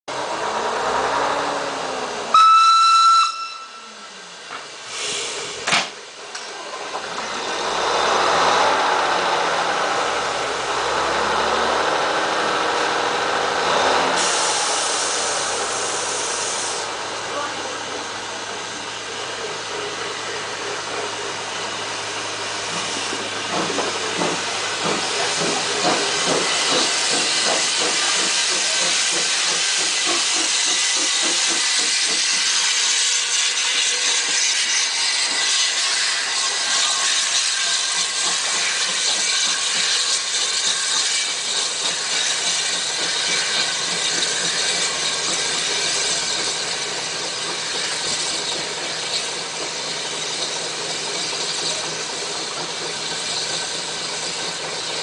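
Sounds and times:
steam locomotive exhaust beats: 0:02.2 - 0:55.0
steam whistle: 0:02.3 - 0:04.2
steam hissing: 0:04.0 - 0:55.0.

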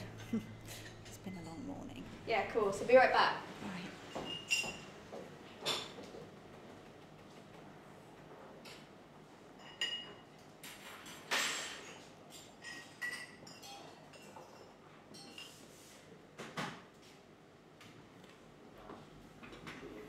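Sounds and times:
cups and dishes clinking: 0:00.0 - 0:02.2, 0:04.0 - 0:06.2, 0:09.5 - 0:15.7.

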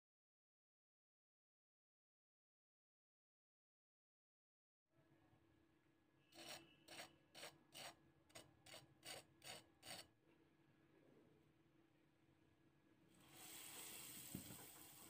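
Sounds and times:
utensil scraping metal cookware: 0:06.3 - 0:10.1.

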